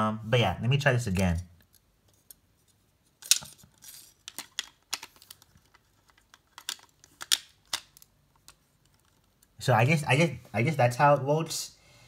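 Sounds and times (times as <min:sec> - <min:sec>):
plastic pieces clicking together: 0:03.2 - 0:09.5.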